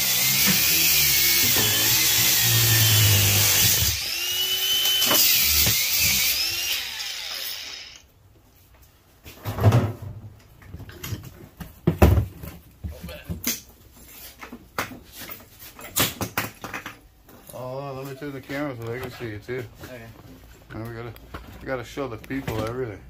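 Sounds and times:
angle grinder cutting metal: 0:00.0 - 0:08.1.

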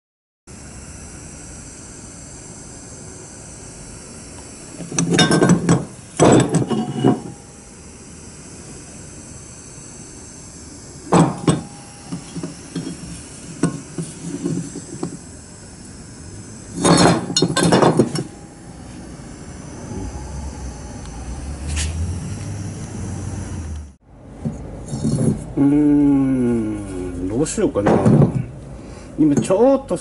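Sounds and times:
steady background hiss: 0:00.6 - 0:24.0.

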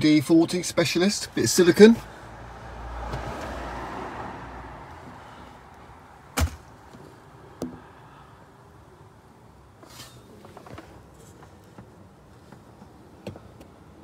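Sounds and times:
sharp knock: 0:06.4 - 0:06.7.

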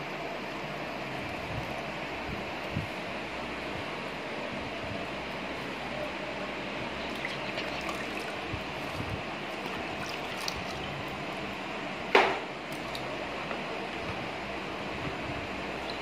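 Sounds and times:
water sloshing in a basin: 0:07.0 - 0:11.4, 0:12.7 - 0:13.2, 0:15.7 - 0:16.0.

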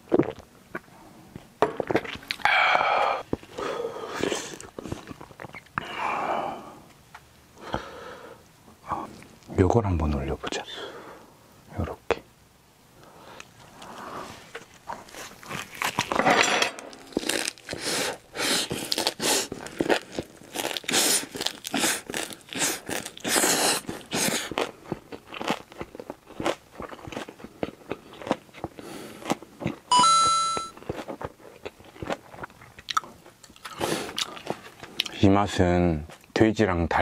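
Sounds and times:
wet biting and crunching: 0:01.8 - 0:02.5, 0:14.6 - 0:16.2, 0:16.8 - 0:29.9, 0:30.7 - 0:35.2.

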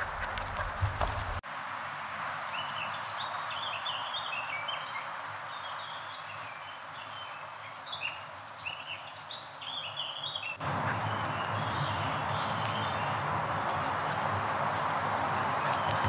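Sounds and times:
birds singing: 0:02.5 - 0:16.0
brook trickling: 0:09.7 - 0:16.0.

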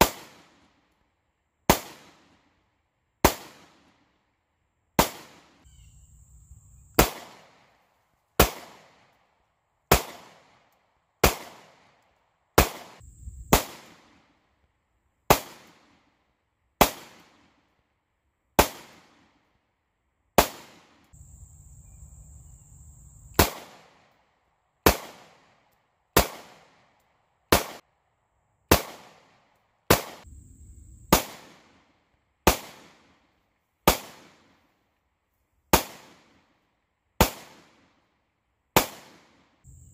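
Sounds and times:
pistol shots: 0:06.9 - 0:07.6, 0:08.4 - 0:09.0, 0:09.9 - 0:11.9, 0:12.6 - 0:14.2, 0:20.4 - 0:21.0, 0:23.3 - 0:24.0, 0:24.8 - 0:25.5, 0:26.2 - 0:26.8, 0:27.5 - 0:27.8, 0:28.7 - 0:30.3, 0:31.1 - 0:31.8, 0:32.4 - 0:33.2, 0:33.8 - 0:34.4.

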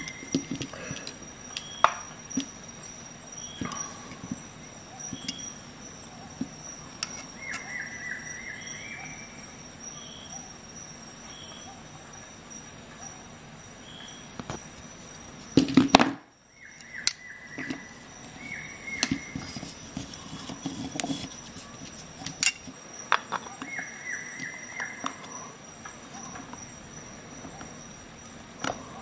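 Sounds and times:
metal tools clattering: 0:19.0 - 0:23.6.

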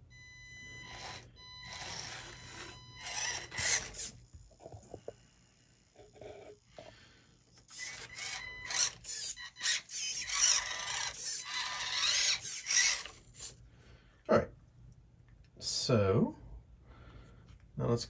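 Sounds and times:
small electric motor whining: 0:00.6 - 0:13.6.

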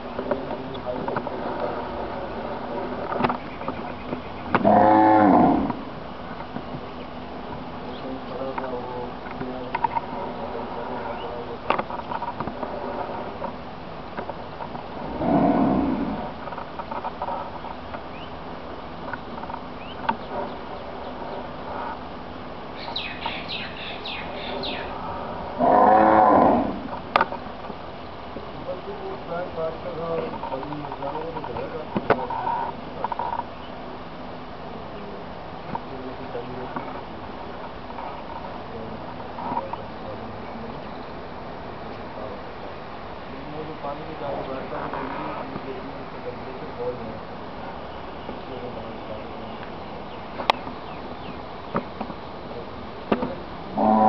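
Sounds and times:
cow mooing: 0:04.6 - 0:05.8, 0:15.0 - 0:16.3, 0:25.4 - 0:26.9, 0:53.7 - 0:54.0
high chirps: 0:22.8 - 0:25.0.

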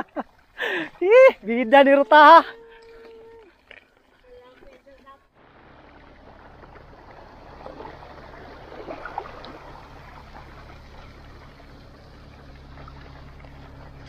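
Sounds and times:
water splashing around bike wheels: 0:00.0 - 0:14.0
low rumble: 0:05.3 - 0:14.0.

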